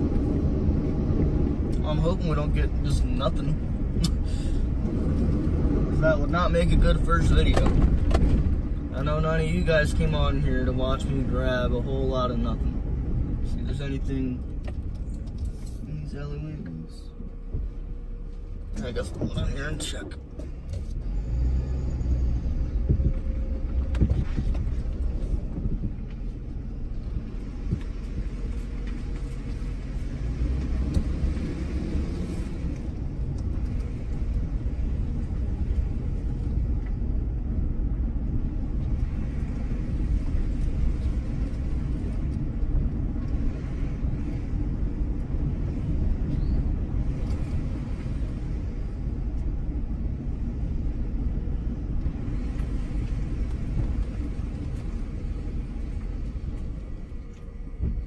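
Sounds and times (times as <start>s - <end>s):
vehicle engine and tyres rumbling: 0.0s - 58.0s.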